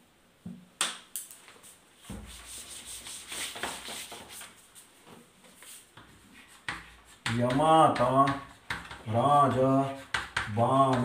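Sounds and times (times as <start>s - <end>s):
duster rubbing on blackboard: 2.0s - 5.0s, 5.6s - 11.0s.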